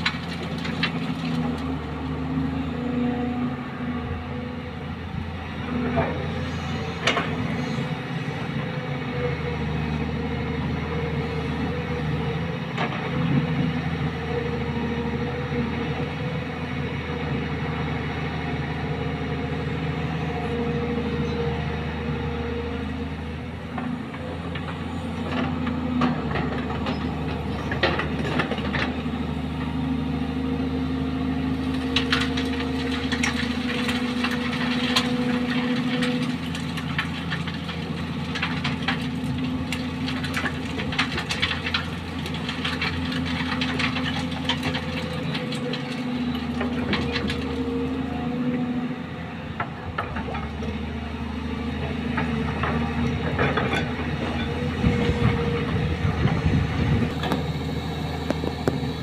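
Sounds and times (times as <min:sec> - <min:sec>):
excavator diesel engine running: 0:00.0 - 0:59.0
metal clanks and scrapes: 0:52.2 - 0:55.3.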